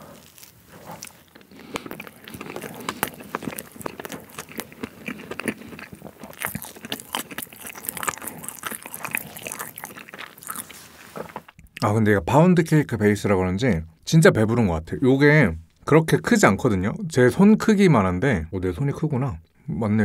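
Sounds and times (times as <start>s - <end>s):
biting into cake: 0.0s - 11.9s
chewing mouth sounds: 0.0s - 11.9s.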